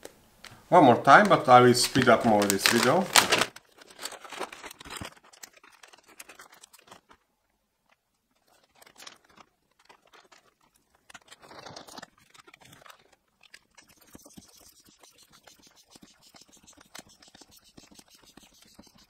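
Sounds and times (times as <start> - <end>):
plastic bag crinkling: 0.9 - 15.0.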